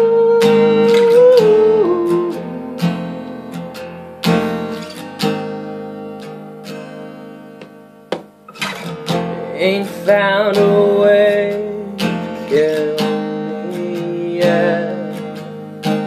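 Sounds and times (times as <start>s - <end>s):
person humming: 0.0s - 3.8s
acoustic guitar chords: 0.0s - 16.0s.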